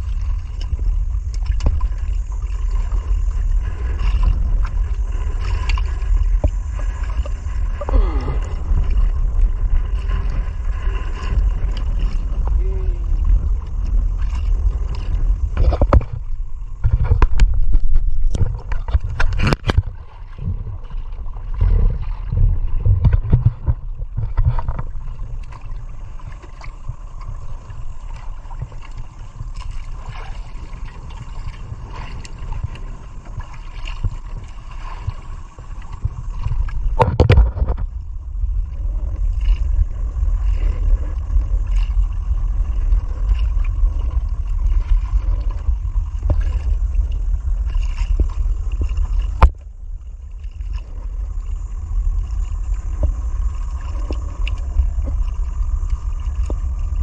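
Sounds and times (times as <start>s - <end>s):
knocks and splashes: 0.0s - 38.1s, 38.7s - 51.1s
low rumble: 0.0s - 57.0s
water sloshing against boat: 0.0s - 57.0s.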